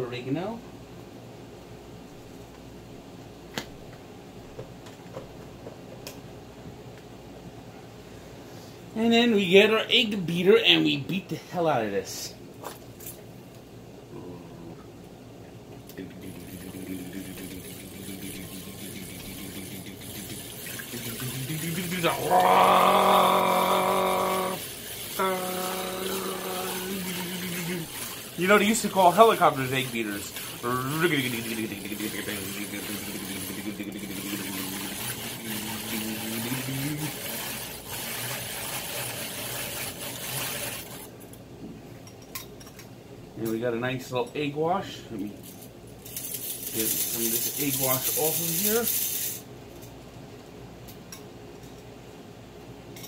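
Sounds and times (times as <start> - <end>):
egg beater whirring and rattling: 16.2 - 41.1, 46.0 - 49.4.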